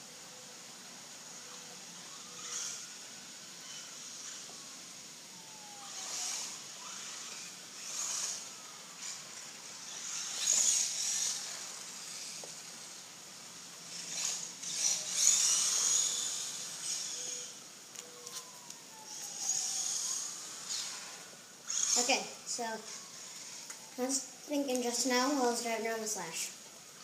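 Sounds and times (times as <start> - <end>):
electric motor whining: 0.3 - 25.0.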